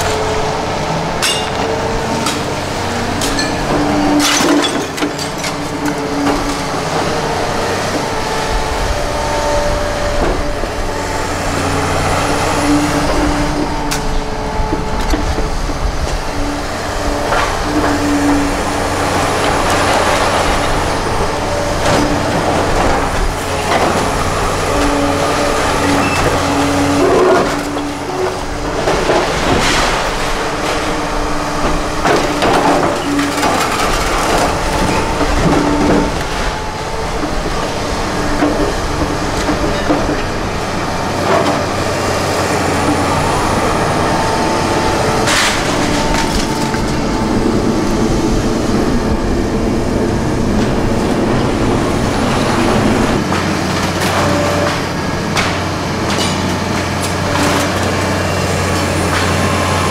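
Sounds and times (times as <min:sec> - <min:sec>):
excavator engine and hydraulics: 0:00.0 - 0:59.9
hydraulic whining: 0:00.0 - 0:59.9
debris crashing and cracking: 0:01.2 - 0:08.1, 0:17.2 - 0:48.1.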